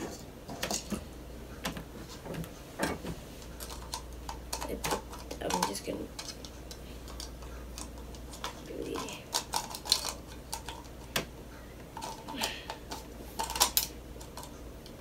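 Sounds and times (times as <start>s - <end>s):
plastic toy egg clicking and scraping: 3.5s - 15.0s.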